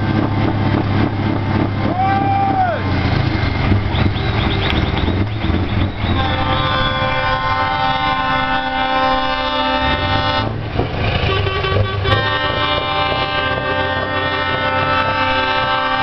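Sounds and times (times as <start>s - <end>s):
diesel engine rumble: 0.0s - 16.0s
truck air horns chord: 6.0s - 16.0s.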